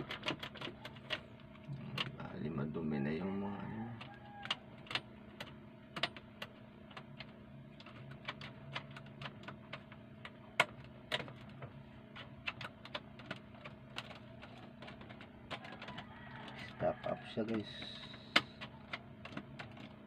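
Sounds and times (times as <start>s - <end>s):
faint steady hum: 0.0s - 20.0s
hand handling radio parts: 9.0s - 20.0s.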